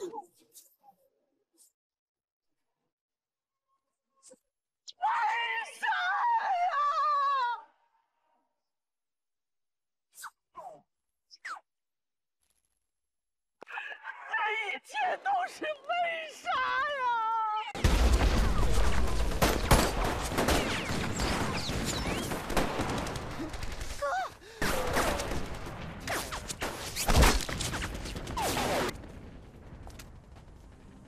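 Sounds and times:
volley of gunfire: 17.8 - 31.0.

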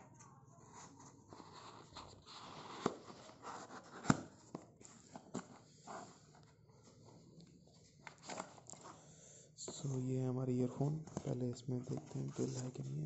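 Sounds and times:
package rustling: 7.9 - 9.0.

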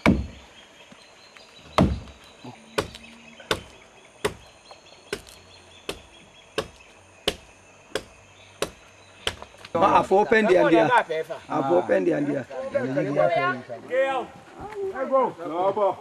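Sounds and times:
adze chopping wood: 0.0 - 0.4, 1.7 - 9.7.

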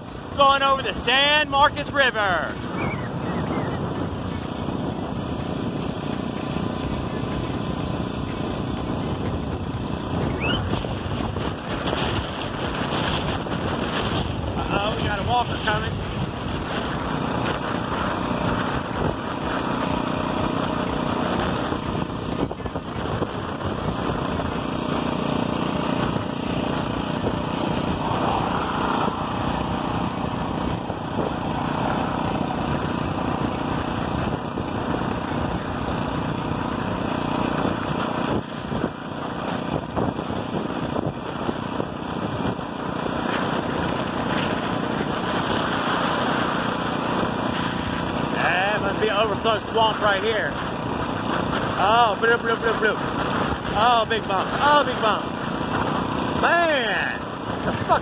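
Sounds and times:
road and wind noise: 0.0 - 58.0
small engine running: 0.0 - 58.0.

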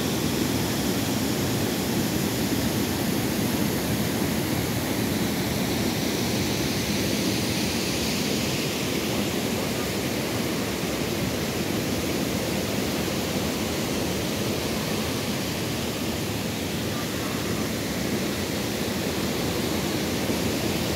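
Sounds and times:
waterfall and rushing river: 0.0 - 20.9.

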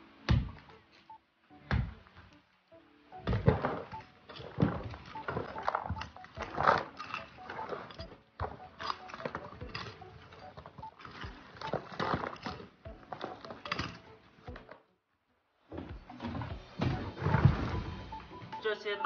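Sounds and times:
hoe chopping and scraping dirt: 3.2 - 14.7.

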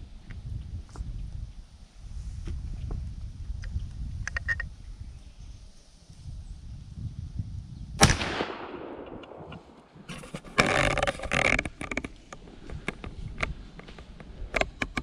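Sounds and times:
rifle shot with echo: 8.0 - 10.1
rustling handling noise: 9.6 - 14.8.

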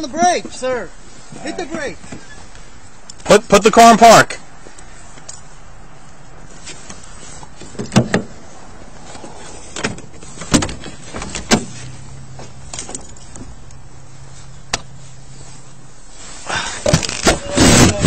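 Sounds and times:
clothing rustling: 4.6 - 18.0
clicks and knocks at car door: 7.7 - 8.3.

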